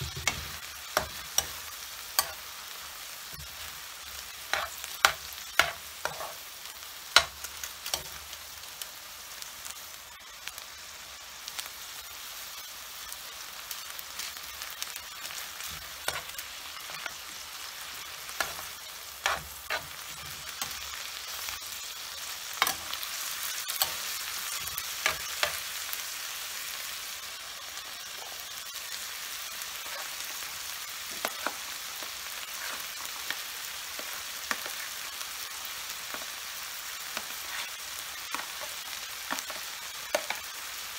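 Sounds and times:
food sizzling in frying pan: 0.0 - 40.9
spatula scraping pan: 4.5 - 6.4, 18.3 - 20.9, 32.4 - 33.2, 37.2 - 40.4.

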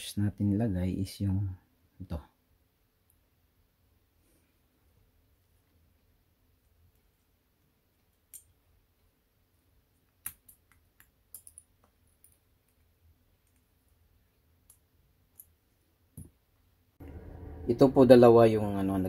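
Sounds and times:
clicks of small parts handled: 10.1 - 13.6.

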